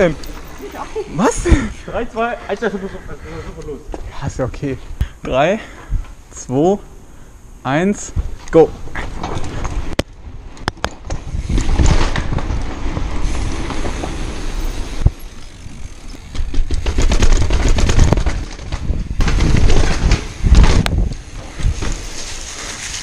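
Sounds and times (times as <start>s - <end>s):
bike tyre rumble: 8.0s - 23.0s
bike knocks on bumps: 16.2s - 22.0s.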